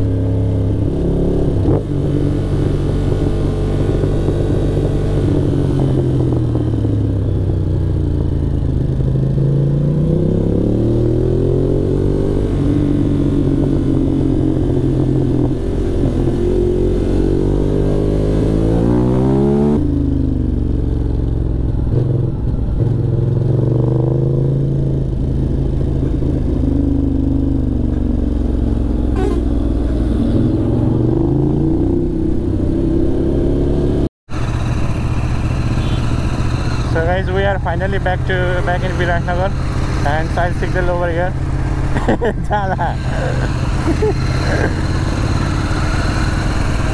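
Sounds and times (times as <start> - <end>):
motorcycle engine revving: 0.0 - 46.9.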